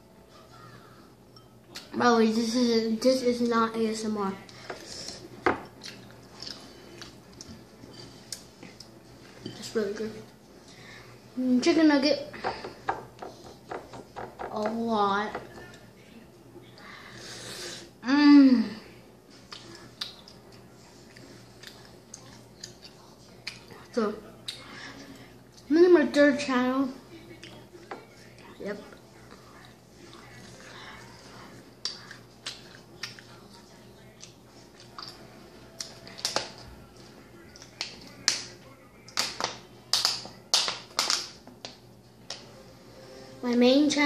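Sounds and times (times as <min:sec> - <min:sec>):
person chewing: 0:04.5 - 0:09.0, 0:19.4 - 0:23.8, 0:34.1 - 0:36.6.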